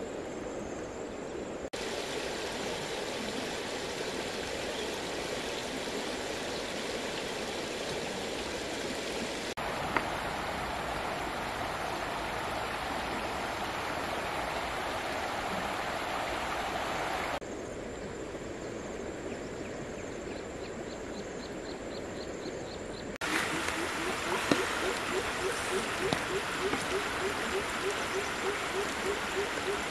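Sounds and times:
stream flowing over stones: 1.8s - 17.4s, 23.2s - 29.9s.

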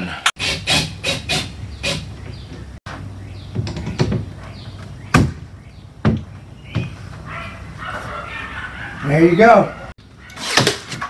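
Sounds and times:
dull wooden knocks: 6.0s - 6.9s.

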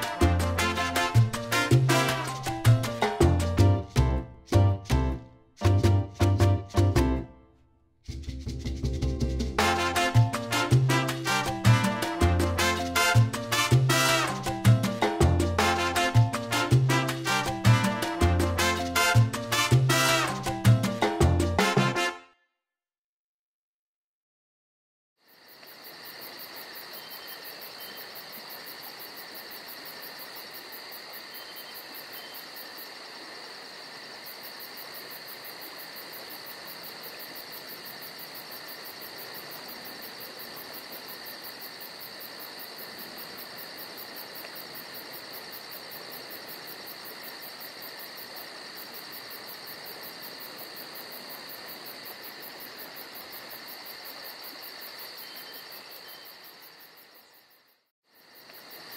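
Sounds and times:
insects trilling: 25.2s - 58.9s.

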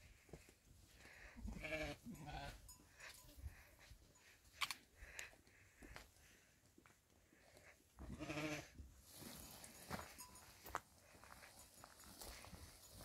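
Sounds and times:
livestock bleating: 1.3s - 2.7s, 8.0s - 8.8s.

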